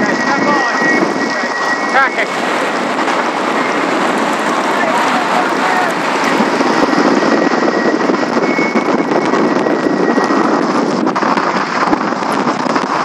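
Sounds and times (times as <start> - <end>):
wind and water rushing: 0.0 - 13.0
faint steady whistle: 6.8 - 10.6.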